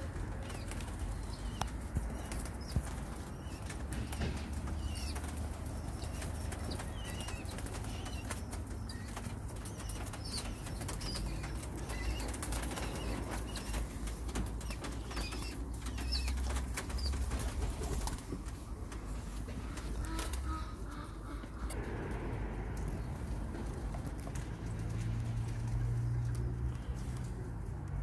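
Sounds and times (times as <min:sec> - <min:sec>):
pigeon wings flapping: 0:00.1 - 0:20.6.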